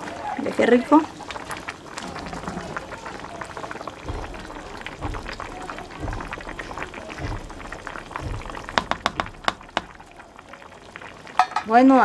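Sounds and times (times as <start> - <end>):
stew bubbling in pot: 0.0 - 12.0
spatula stirring stew: 0.5 - 10.4
soft low thumps: 3.7 - 10.5.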